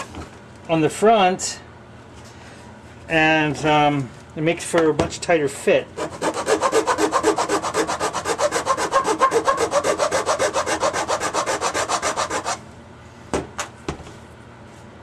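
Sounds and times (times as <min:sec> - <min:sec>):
file rasping on plastic: 0:06.0 - 0:12.6.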